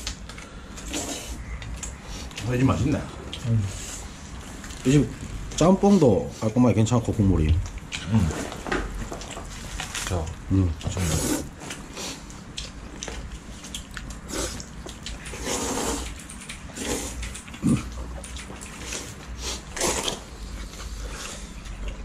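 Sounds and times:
people slurping noodles: 0.8s - 1.4s, 8.0s - 8.6s, 10.9s - 12.2s, 14.2s - 18.0s, 18.7s - 21.7s.

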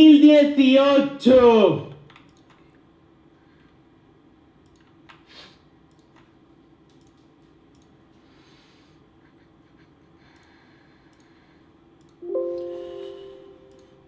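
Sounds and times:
low steady hum: 5.7s - 14.0s.

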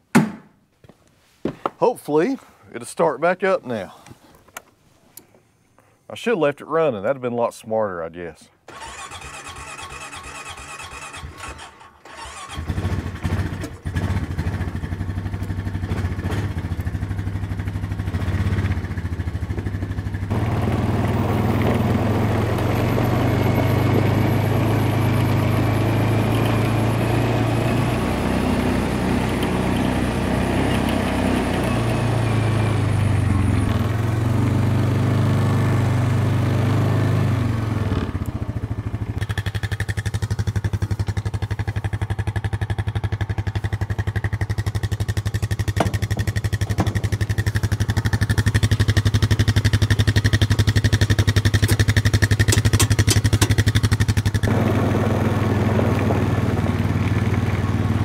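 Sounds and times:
starter cranking: 8.7s - 13.9s, 44.7s - 56.0s
quad engine idling and revving: 8.7s - 58.0s.

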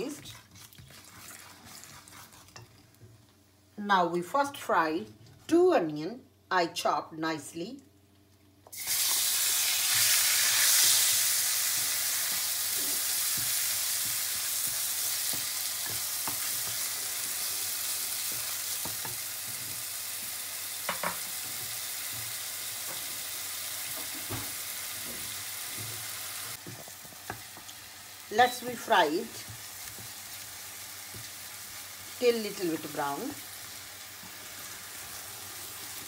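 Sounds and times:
wooden spoon stirring: 0.0s - 2.8s
onions sizzling in hot oil: 8.7s - 36.0s.

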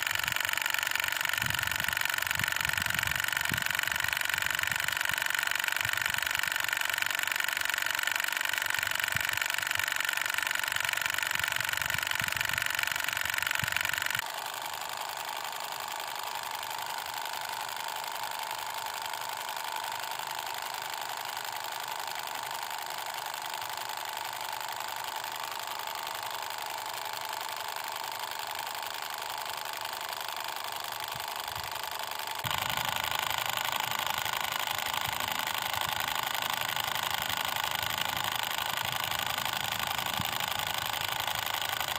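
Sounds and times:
small motor high-pitched whir: 0.0s - 41.9s.

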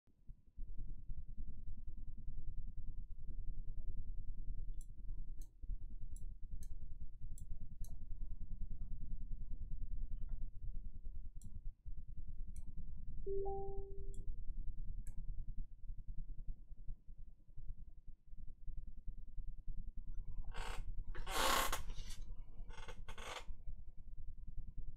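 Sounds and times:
short low beep: 13.3s - 14.2s.

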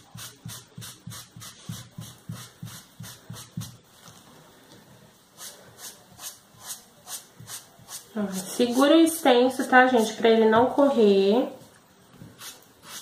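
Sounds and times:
foam sponge dabbing paint: 0.0s - 4.2s, 5.2s - 10.2s, 12.1s - 13.0s.

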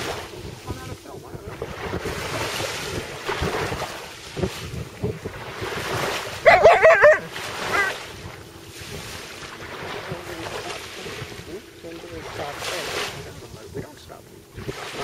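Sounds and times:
surf: 0.0s - 15.0s
wind on microphone: 0.0s - 15.0s
dog vocalizing: 6.4s - 8.0s.

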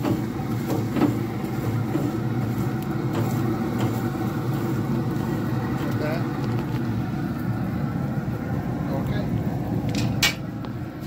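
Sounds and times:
grill brush scraping grates: 0.0s - 6.8s
steady low hum: 0.0s - 11.0s.

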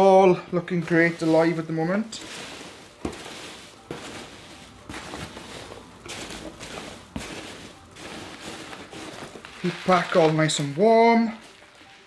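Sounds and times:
cardboard box rustling: 0.8s - 12.0s.

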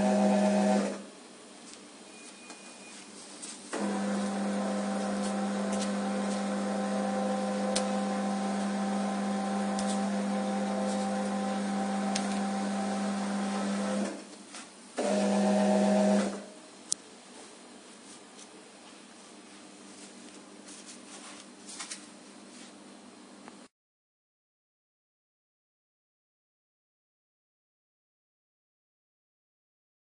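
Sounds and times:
conveyor belt motor hum: 0.0s - 1.4s, 3.7s - 14.3s.

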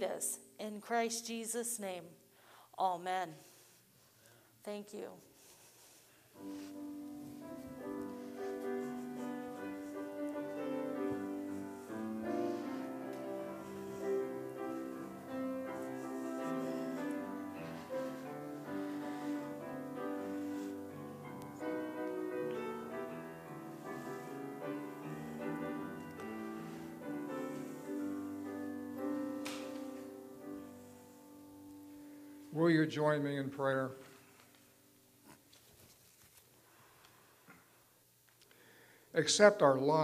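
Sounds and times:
slow piano music: 6.4s - 35.1s.

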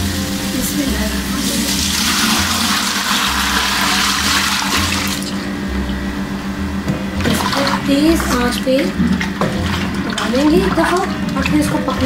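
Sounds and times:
batter pouring into a pot: 0.0s - 5.2s.

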